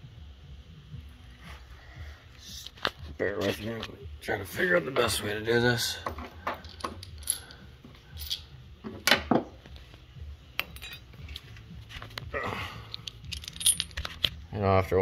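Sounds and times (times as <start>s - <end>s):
small metal parts clinking: 6.1s - 9.2s, 10.6s - 11.5s, 12.8s - 14.4s.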